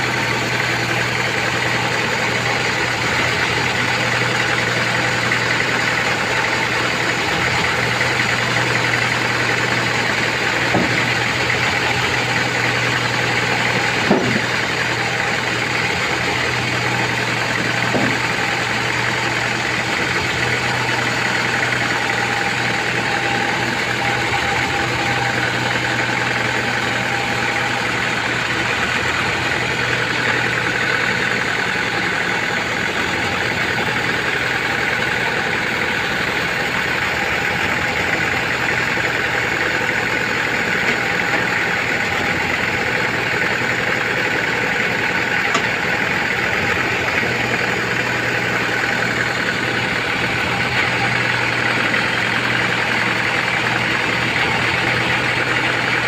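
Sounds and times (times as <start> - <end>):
low motor hum: 0.0 - 56.0
band saw cutting log: 10.4 - 18.8.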